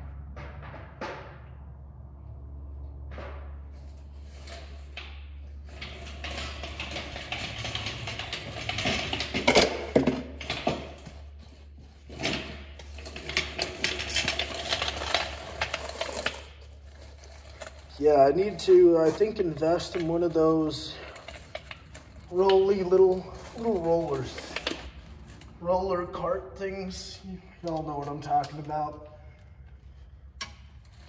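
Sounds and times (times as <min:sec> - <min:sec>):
low hum: 0:00.0 - 0:06.4.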